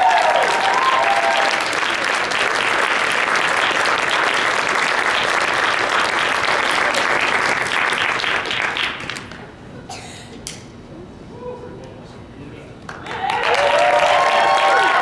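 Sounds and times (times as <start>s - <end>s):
audience cheering: 0.0s - 2.1s, 13.0s - 15.0s
audience applauding: 0.0s - 9.4s, 12.9s - 15.0s.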